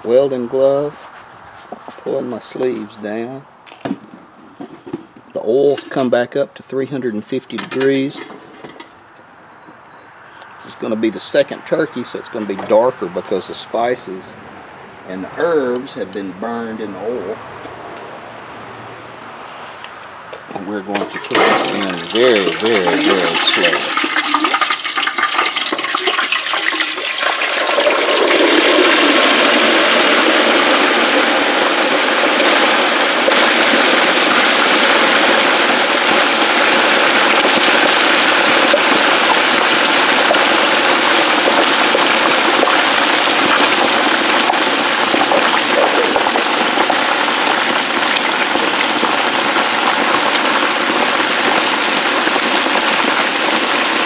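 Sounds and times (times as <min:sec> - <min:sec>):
oil bubbling and sizzling: 0:20.9 - 0:54.0.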